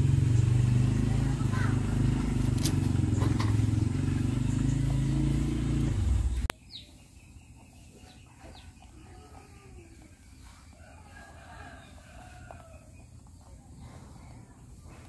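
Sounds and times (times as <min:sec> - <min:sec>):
engine running: 0:00.0 - 0:06.5.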